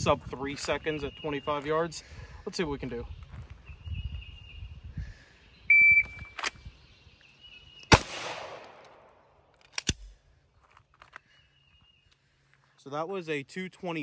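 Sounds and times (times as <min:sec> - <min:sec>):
pistol shot with echo: 0:07.9 - 0:09.2
sharp clicks: 0:08.7 - 0:10.1.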